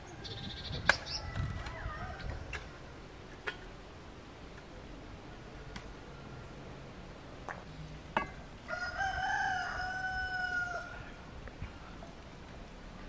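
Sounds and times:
birds chirping and trilling: 0:00.0 - 0:03.0.

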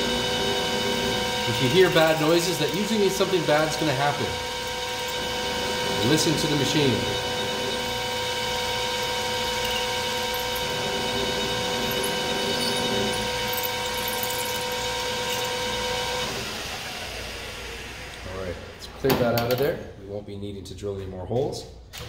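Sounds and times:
drill bit boring into metal: 0:00.0 - 0:16.8
metal lathe whining: 0:00.0 - 0:18.3.

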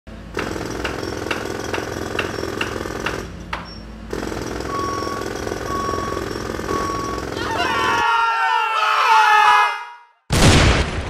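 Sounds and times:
jackhammer hammering: 0:00.2 - 0:08.0
short beeps: 0:04.6 - 0:07.4.

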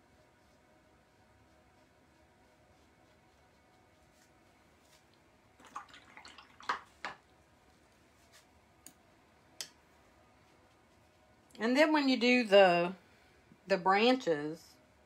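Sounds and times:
taps and splashes: 0:05.6 - 0:07.2.

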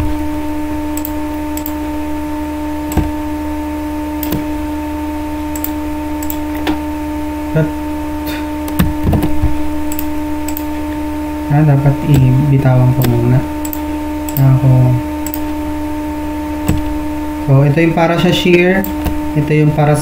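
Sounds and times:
steady electrical hum: 0:00.0 - 0:20.0
mouse clicks: 0:01.0 - 0:01.8, 0:04.2 - 0:04.5, 0:05.5 - 0:06.8, 0:09.9 - 0:10.7, 0:13.0 - 0:14.5, 0:15.2 - 0:15.4.

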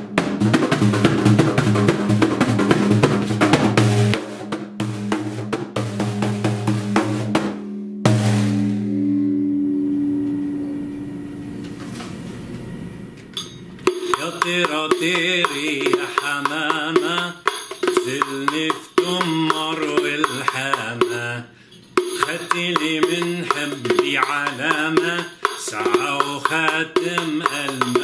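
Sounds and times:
sharp riq strikes: 0:05.9 - 0:11.8
man singing: 0:14.0 - 0:28.0.

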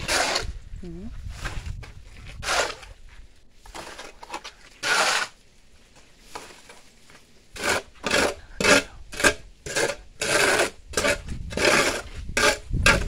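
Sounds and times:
shovel scraping concrete: 0:00.0 - 0:00.6, 0:01.2 - 0:05.5, 0:07.5 - 0:13.0.

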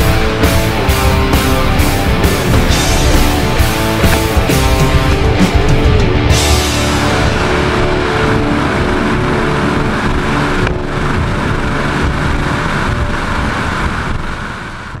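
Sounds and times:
powerboat engines: 0:00.0 - 0:15.0
water rush: 0:00.0 - 0:15.0
wind rush: 0:00.0 - 0:15.0.

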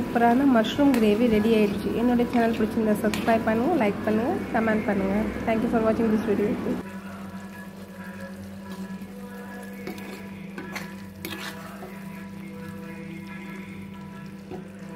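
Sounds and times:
metal ladle stirring and scraping pan: 0:09.4 - 0:12.8.

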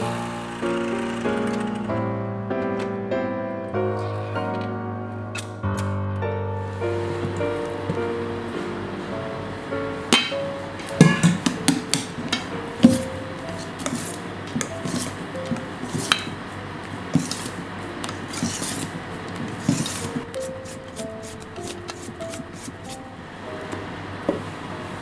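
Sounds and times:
soft background music: 0:00.0 - 0:16.4, 0:17.1 - 0:25.0
whisk scraping metal bowl: 0:12.9 - 0:16.3, 0:17.1 - 0:23.0.

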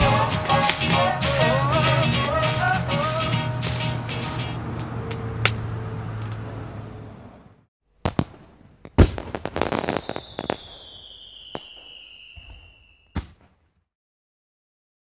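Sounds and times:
firework crackling: 0:00.0 - 0:04.6, 0:08.0 - 0:13.3
firework bangs: 0:08.0 - 0:13.7
whistling firework: 0:09.0 - 0:13.6.

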